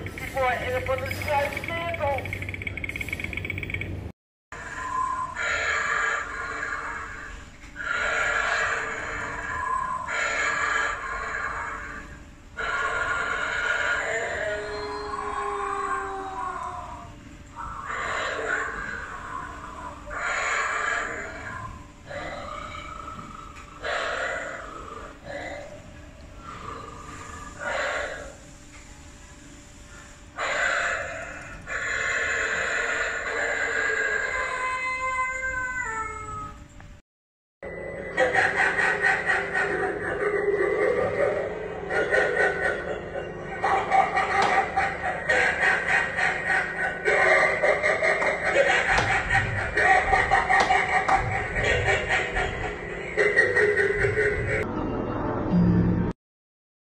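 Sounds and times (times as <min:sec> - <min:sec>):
long pitched cry: 0:04.6 - 0:23.2, 0:29.9 - 0:36.6.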